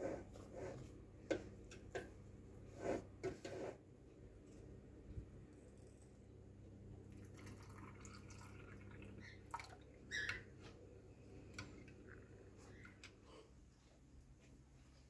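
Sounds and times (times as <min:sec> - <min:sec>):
water poured into bowl: 0:07.1 - 0:09.9.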